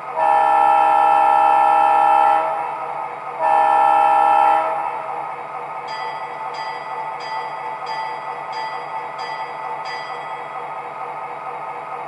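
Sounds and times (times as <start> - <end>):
model locomotive air horn: 0.2 - 2.6, 3.4 - 4.9.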